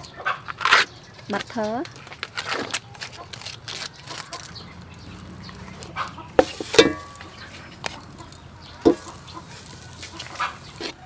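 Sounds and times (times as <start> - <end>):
chicken clucking: 0.0 - 0.6, 4.0 - 11.0
spoon knocking on pot: 6.4 - 7.4, 8.8 - 9.2.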